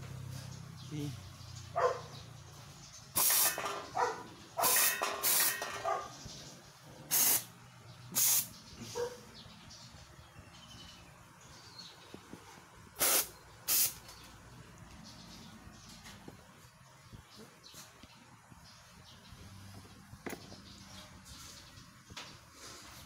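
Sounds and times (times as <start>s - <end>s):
steam cleaner hissing bursts: 3.2s - 3.6s, 4.6s - 5.6s, 7.1s - 7.5s, 8.1s - 8.5s, 13.0s - 14.0s.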